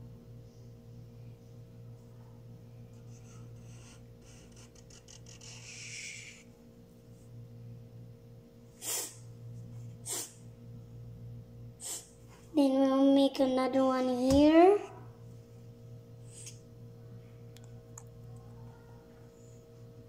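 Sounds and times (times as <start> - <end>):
steady low hum: 0.0 - 20.0
marker scratching on paper: 2.9 - 6.5.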